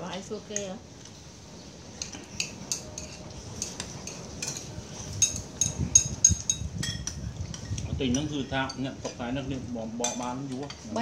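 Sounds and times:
spoons clinking on ceramic bowls: 0:02.0 - 0:08.9, 0:10.0 - 0:11.0.

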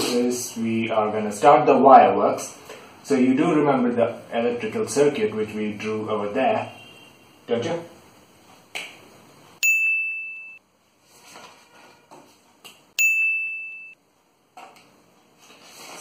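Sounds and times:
bright ding chimes: 0:09.6 - 0:10.6, 0:13.0 - 0:14.0.

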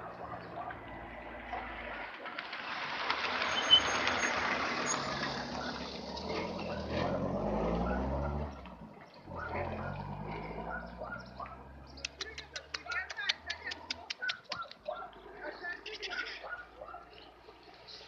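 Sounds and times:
vehicle passing: 0:00.0 - 0:18.0.

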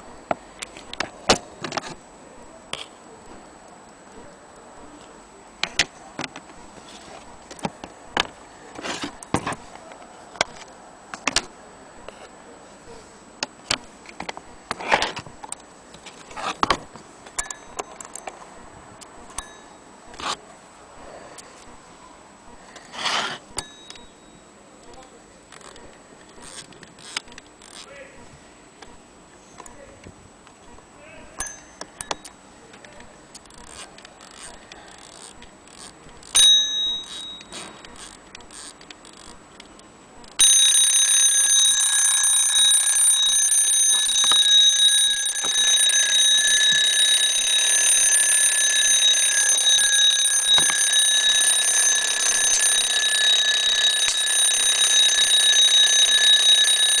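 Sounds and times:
alarm clock ringing: 0:36.4 - 0:37.5, 0:40.4 - 0:57.0.

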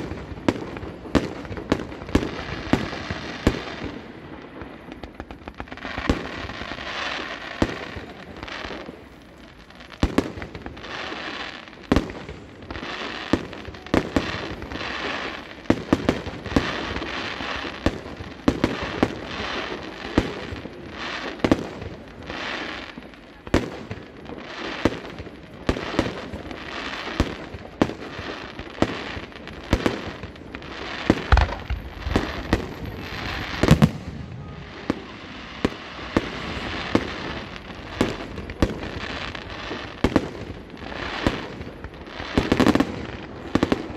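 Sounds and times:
crackling hiss of fireworks: 0:00.0 - 0:43.9
fireworks bursting with sharp bangs: 0:00.0 - 0:43.9.

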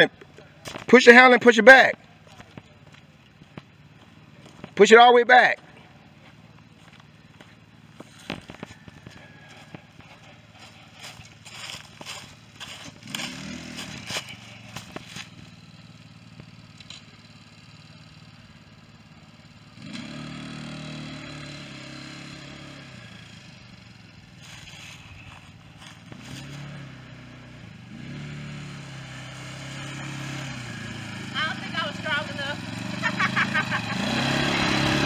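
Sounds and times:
atv engine revving: 0:00.0 - 0:35.0
footsteps crunching through dry leaves: 0:06.1 - 0:15.6, 0:24.0 - 0:27.1.

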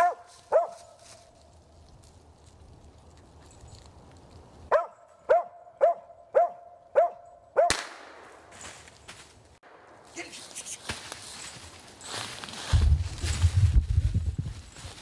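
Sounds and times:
dog barking: 0:00.0 - 0:01.0, 0:04.7 - 0:07.8.

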